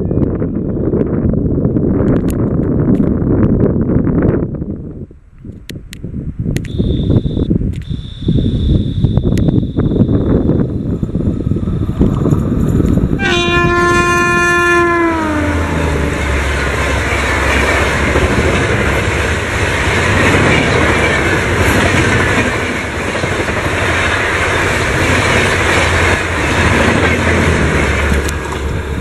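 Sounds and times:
train wheels rushing on rails: 10.0 - 29.0
train horn: 13.2 - 16.5.

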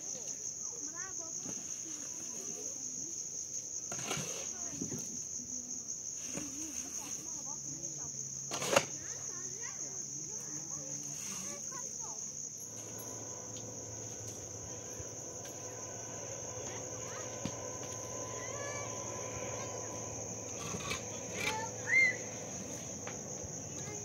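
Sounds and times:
insect chorus trilling: 0.0 - 24.0
faint low hum: 9.1 - 24.0
rising chirp: 12.6 - 24.0.

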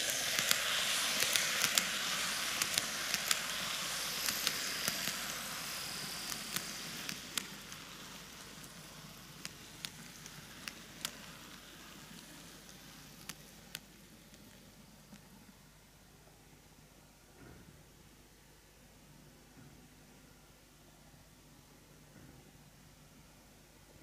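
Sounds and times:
model train running on track: 0.0 - 15.3.

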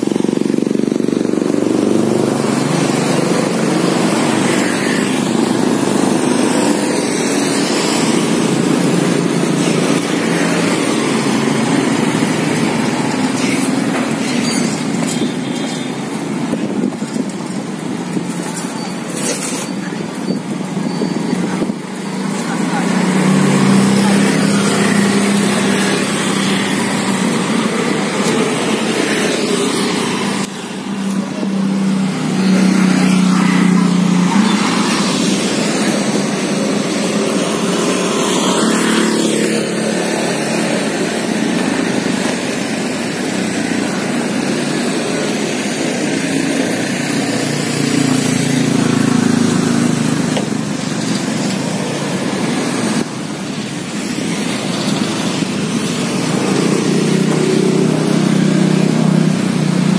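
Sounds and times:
motorcycle engines passing: 0.0 - 59.9.

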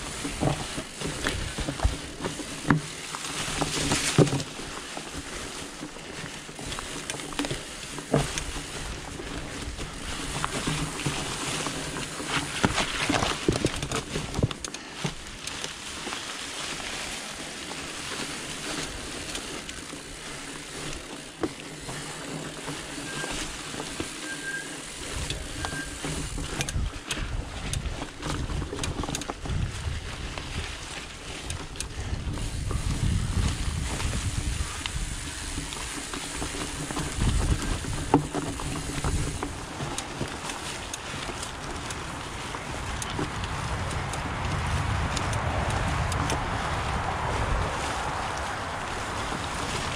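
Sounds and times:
bike knocks and rattles: 0.0 - 49.9
bike tires rolling on dirt: 0.0 - 49.9
wind rumble on microphone: 25.0 - 40.4, 41.1 - 49.9.

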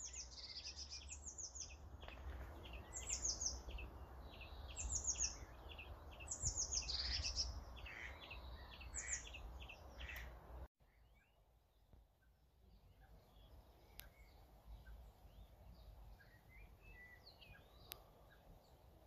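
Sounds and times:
wind rumbling on microphone: 0.0 - 10.6
songbirds singing: 0.0 - 19.0.

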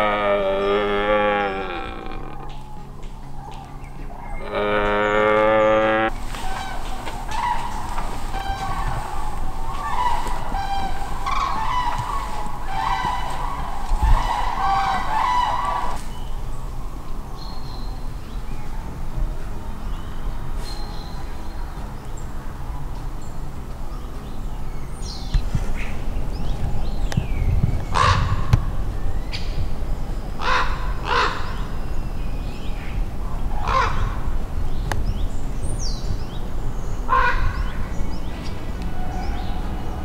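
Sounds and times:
crow cawing: 0.0 - 2.8, 4.4 - 16.1, 30.4 - 31.6, 33.6 - 34.2, 37.1 - 37.6
small birds chirping: 0.4 - 33.9.

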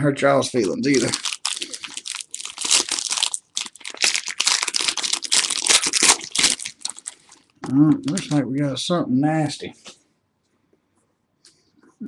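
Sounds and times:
foil wrapper tearing and crinkling: 0.6 - 8.4.

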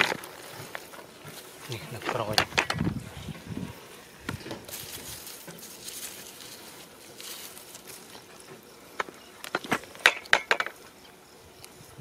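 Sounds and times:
hand scraping in dry mud: 0.0 - 8.3.

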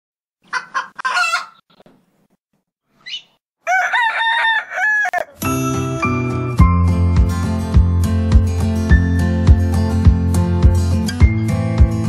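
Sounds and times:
rooster clucking and crowing: 0.5 - 1.6, 3.6 - 5.4.

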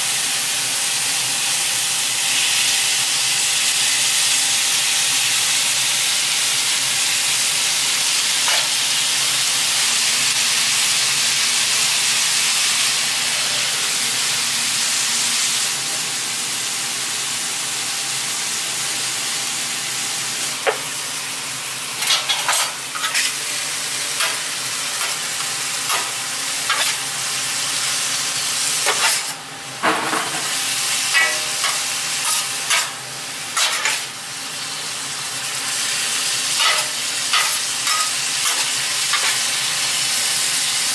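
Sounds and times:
food sizzling on a griddle: 0.0 - 40.9
metal spatula scraping griddle: 8.5 - 8.7, 22.0 - 23.4, 24.1 - 27.0, 28.8 - 33.0, 33.6 - 34.1, 36.6 - 39.6.

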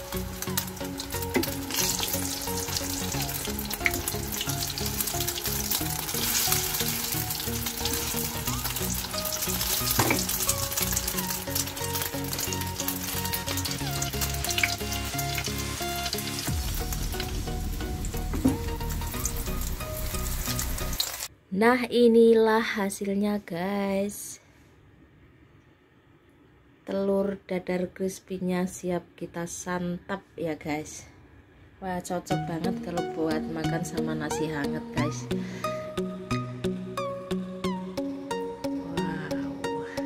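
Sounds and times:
batter sizzling in hot oil: 0.0 - 21.3.

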